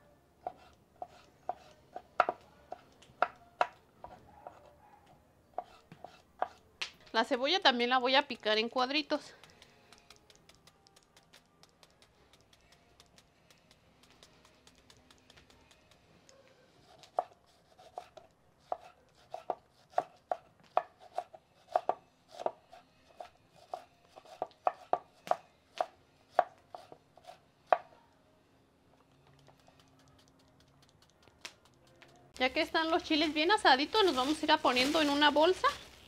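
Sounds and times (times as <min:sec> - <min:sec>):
knife chopping on wooden board: 0:00.4 - 0:04.6, 0:05.6 - 0:06.6, 0:16.9 - 0:27.9.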